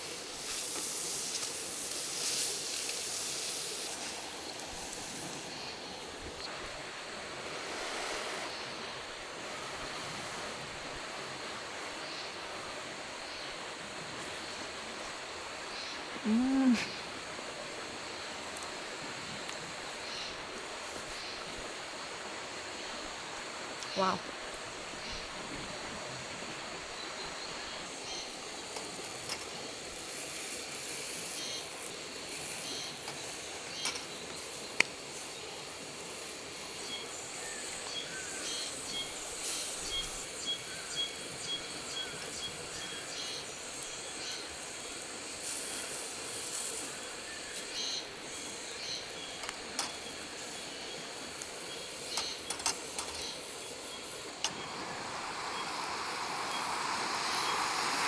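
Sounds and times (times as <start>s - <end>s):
food sizzling on grill plate: 0.0s - 5.7s, 27.1s - 58.0s.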